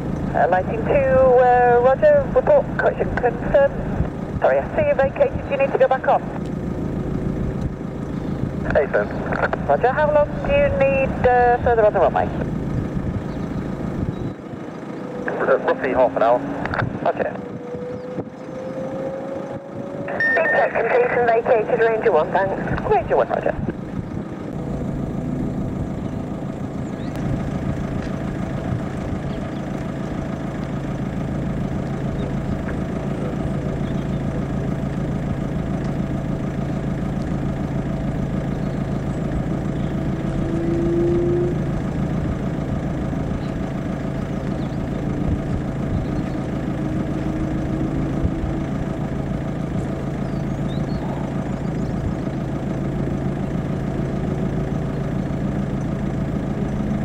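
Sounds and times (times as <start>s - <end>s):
engine idling hum: 0.0s - 57.0s
short higher whine: 11.6s - 21.8s, 39.7s - 42.5s, 44.6s - 52.4s.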